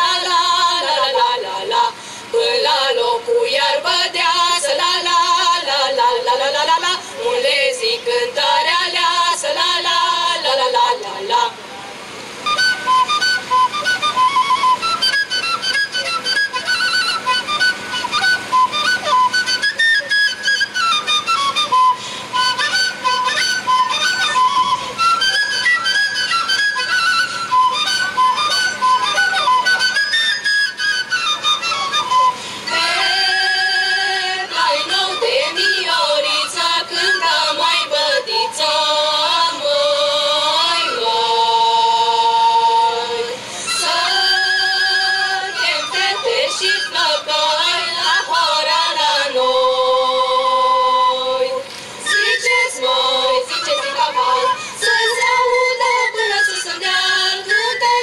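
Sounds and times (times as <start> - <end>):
women's choir singing: 0.0 - 11.6, 32.7 - 58.0
shepherd's flute folk tune: 0.0 - 58.0.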